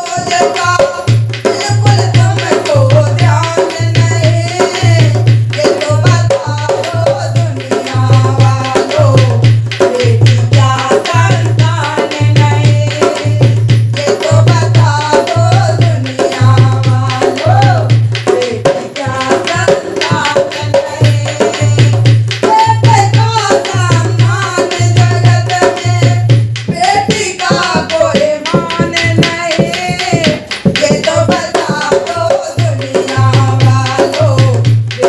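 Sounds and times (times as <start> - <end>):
hand drum rhythm: 0.0 - 35.0
woman singing devotional song: 0.0 - 35.0.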